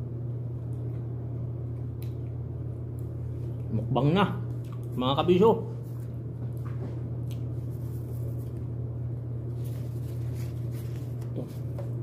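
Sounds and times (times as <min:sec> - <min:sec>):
steady low hum: 0:00.0 - 0:12.0
soft clicks and rustles of eating: 0:00.4 - 0:03.8, 0:04.4 - 0:05.0, 0:05.8 - 0:08.7.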